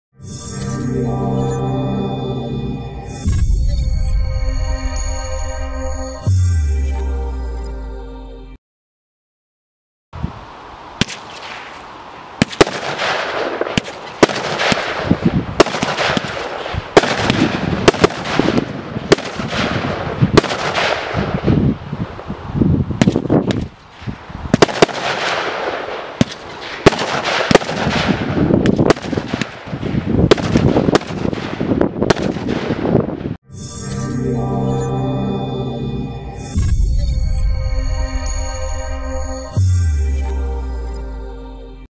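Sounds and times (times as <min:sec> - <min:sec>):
firework bangs: 0:11.0 - 0:11.8, 0:12.4 - 0:21.7, 0:23.0 - 0:33.2.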